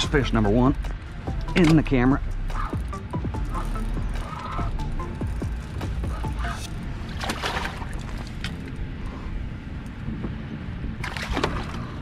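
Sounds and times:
wind rumbling on microphone: 0:00.0 - 0:12.0
water lapping against hull: 0:02.4 - 0:09.3, 0:11.0 - 0:12.0
water splashes: 0:05.8 - 0:08.7, 0:11.0 - 0:12.0.

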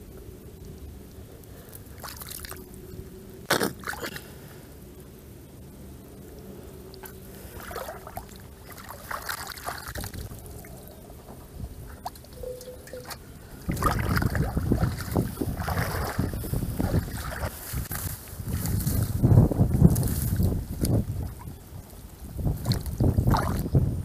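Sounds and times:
low rumbling: 0:00.0 - 0:24.0
hands splashing in muddy water: 0:07.6 - 0:10.3, 0:13.7 - 0:18.9, 0:22.6 - 0:23.7.

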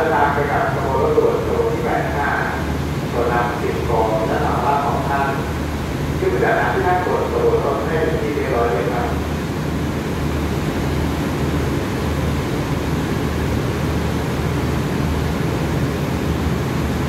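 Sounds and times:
diesel train idling: 0:00.0 - 0:17.0.

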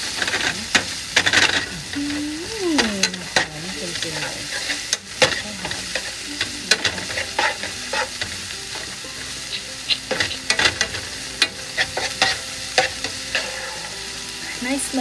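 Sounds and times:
garlic sizzling in oil: 0:00.0 - 0:15.0
spatula scraping and tapping pan: 0:00.1 - 0:02.1, 0:02.8 - 0:14.0.

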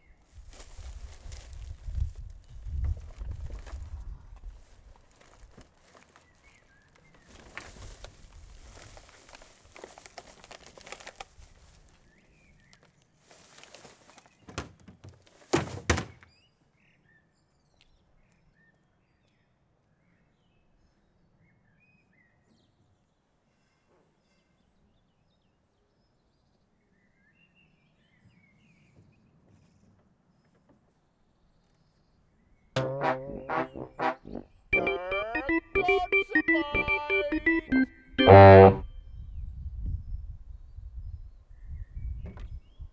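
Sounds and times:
wheelie bin lid thunking shut: 0:14.5 - 0:16.2.

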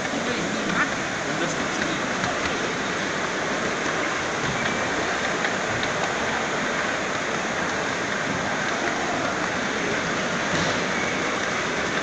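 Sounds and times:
train wheels rumbling on rails: 0:00.0 - 0:12.0
faint clicks: 0:03.7 - 0:09.7.

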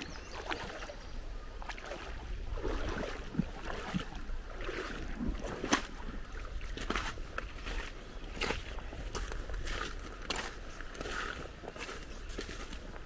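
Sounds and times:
wind rumbling on microphone: 0:00.0 - 0:13.0
footsteps on wet gravel: 0:01.7 - 0:13.0.

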